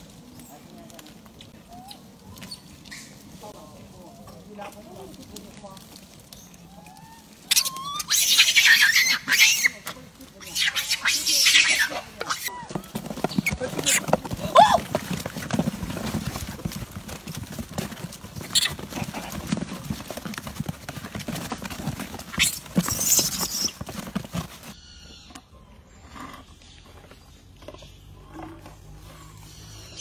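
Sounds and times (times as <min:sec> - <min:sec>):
monkeys rustling and tapping: 0:00.0 - 0:24.8
monkey squealing: 0:07.0 - 0:12.7.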